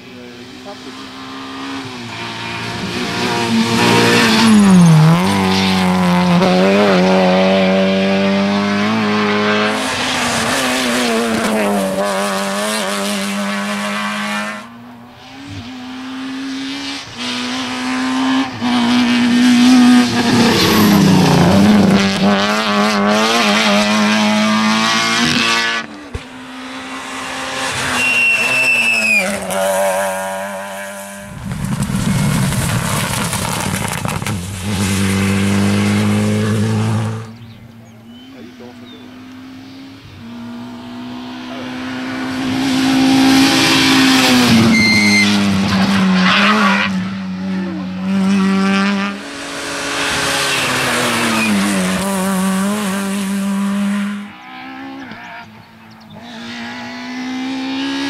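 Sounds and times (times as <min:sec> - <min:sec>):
rally car engines revving: 0:00.0 - 0:58.0
short high squeal: 0:27.8 - 0:29.4, 0:44.6 - 0:45.4.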